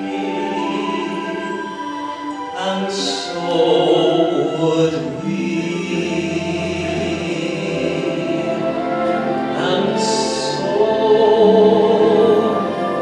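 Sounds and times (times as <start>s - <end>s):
instrumental accompaniment: 0.0s - 13.0s
man singing: 2.5s - 13.0s.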